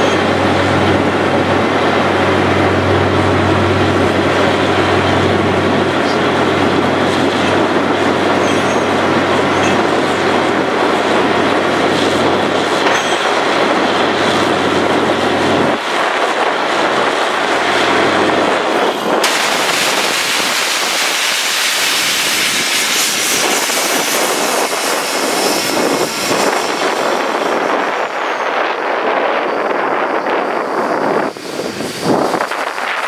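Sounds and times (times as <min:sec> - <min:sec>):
low engine hum: 0:00.0 - 0:21.0
compressed air rushing: 0:13.6 - 0:28.1, 0:30.4 - 0:33.0.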